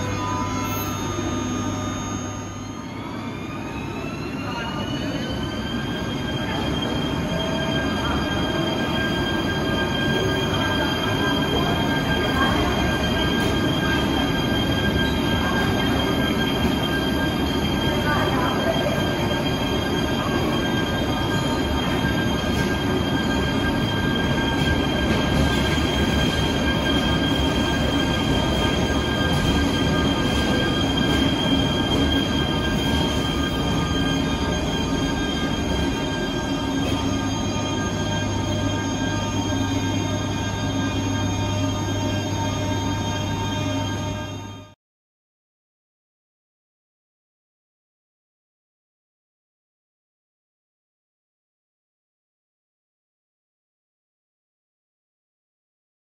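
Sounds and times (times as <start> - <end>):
train rumbling: 0.0 - 44.6
high-pitched tones: 0.0 - 44.7.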